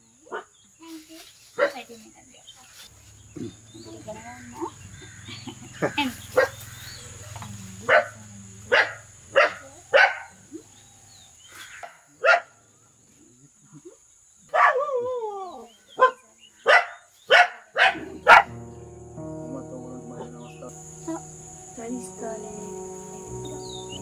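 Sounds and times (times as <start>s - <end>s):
dog barking: 6.4s - 6.6s, 7.9s - 10.4s, 12.2s - 12.6s, 14.5s - 14.9s, 16.0s - 18.5s.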